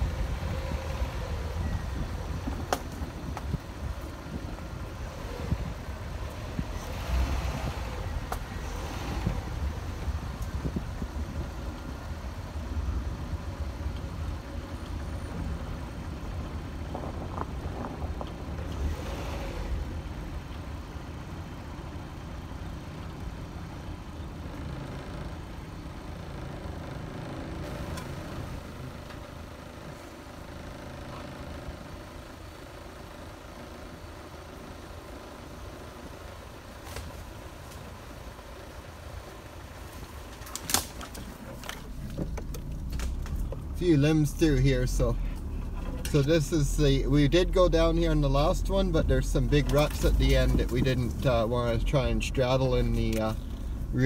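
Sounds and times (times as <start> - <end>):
knocks and rattles over bumps: 0.0 - 11.5, 13.8 - 20.6, 39.7 - 44.2, 48.1 - 53.9
car engine and road rumble: 0.0 - 54.0.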